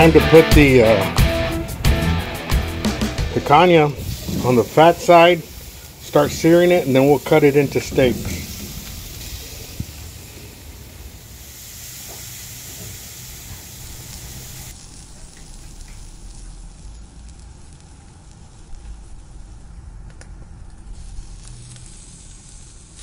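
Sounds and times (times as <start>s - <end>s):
fat flaring up in fire: 1.8s - 23.0s
meat sizzling on a grill: 3.2s - 23.0s.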